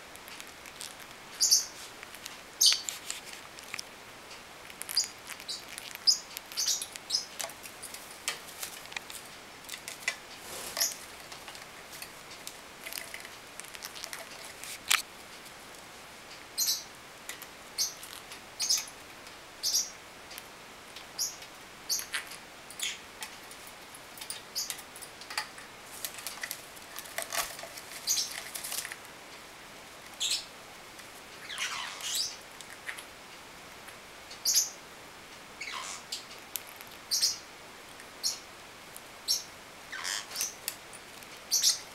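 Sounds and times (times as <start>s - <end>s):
parrots chirping: 0.4s - 3.9s, 4.6s - 7.7s, 10.6s - 11.1s, 16.6s - 16.9s, 17.8s - 18.9s, 19.6s - 20.0s, 21.2s - 23.0s, 27.3s - 28.5s, 31.4s - 33.0s, 35.6s - 36.2s, 37.1s - 37.5s, 39.2s - 40.7s, 41.5s - 41.9s.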